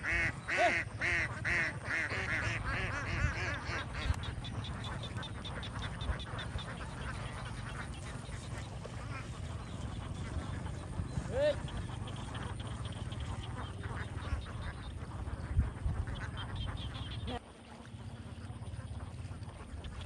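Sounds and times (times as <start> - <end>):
ducks quacking: 0.0 - 20.0.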